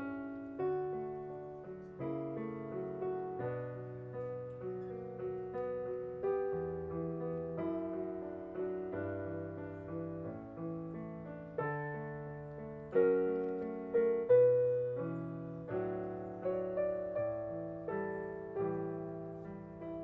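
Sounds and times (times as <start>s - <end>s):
piano playing slow chords: 0.0s - 20.0s.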